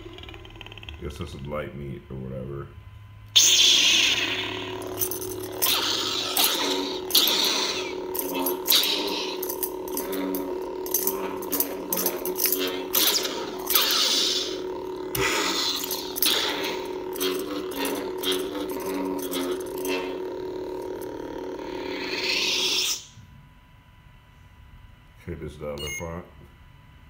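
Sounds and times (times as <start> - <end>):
lightsaber electronic drone: 0.0 - 2.7, 3.3 - 23.2
lightsaber swing and clash effects: 5.0 - 20.2.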